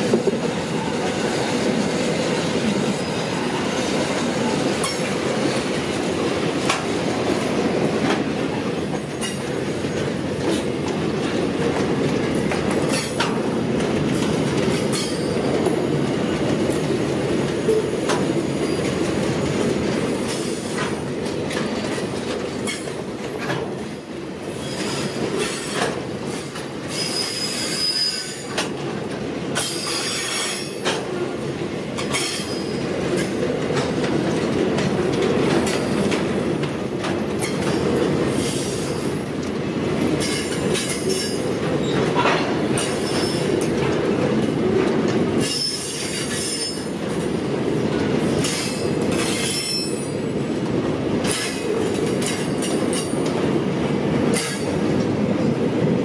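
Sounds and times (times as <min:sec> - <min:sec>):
train wheels rumbling on rail: 0:00.0 - 0:56.0
high-pitched wheel squeal: 0:22.6 - 0:28.5, 0:49.4 - 0:50.1.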